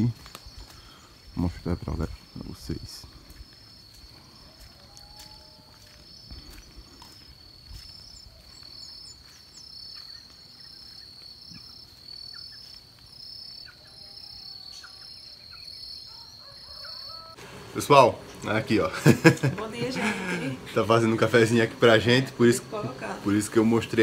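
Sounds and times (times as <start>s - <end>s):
insects trilling: 0.0s - 24.0s
pulsing insect trill: 0.0s - 24.0s
faint bird chirps: 0.2s - 17.3s.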